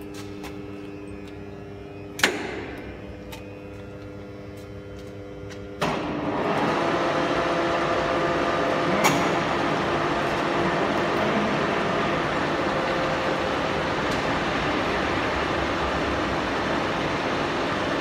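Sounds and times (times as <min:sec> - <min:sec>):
machine drive humming: 0:00.0 - 0:18.0
machine running noise: 0:00.0 - 0:18.0
sharp mechanical clunk: 0:02.2 - 0:02.8.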